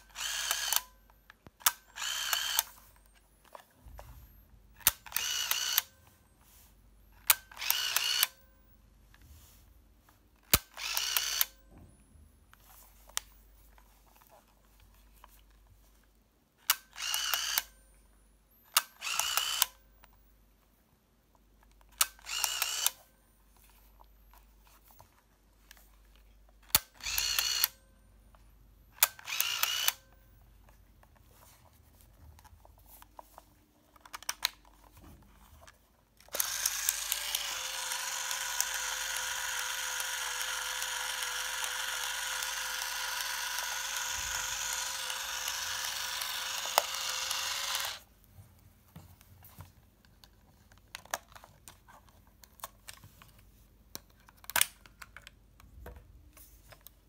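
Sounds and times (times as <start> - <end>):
camera film motor whirring: 0.0 - 0.9, 1.6 - 2.8, 4.8 - 5.9, 7.2 - 8.4, 10.4 - 11.6, 16.7 - 17.7, 18.7 - 19.8, 22.0 - 23.0, 26.7 - 27.8, 29.0 - 30.1, 36.2 - 48.1
small plastic clicks: 32.4 - 48.1, 50.0 - 56.0.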